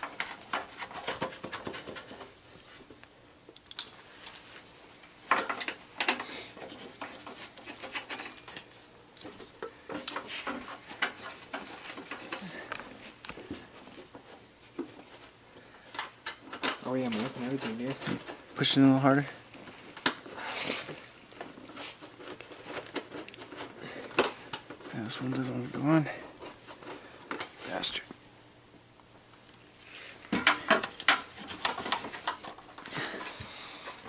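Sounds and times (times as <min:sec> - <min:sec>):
tools clicking and clattering: 0:05.3 - 0:13.3.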